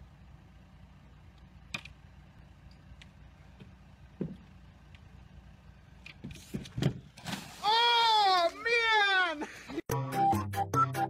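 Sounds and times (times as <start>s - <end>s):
dull thump: 3.6s - 4.5s.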